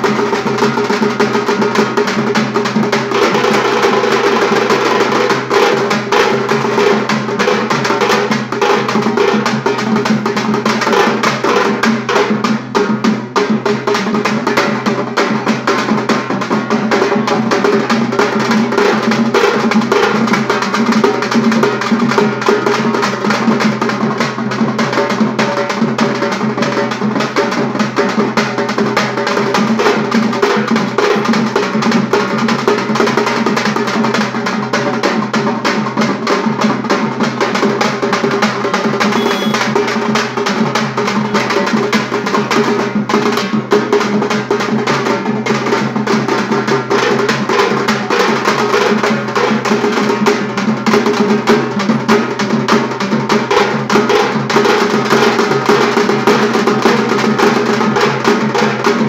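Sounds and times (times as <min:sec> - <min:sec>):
drum band playing fast rhythm: 0:00.0 - 0:59.0.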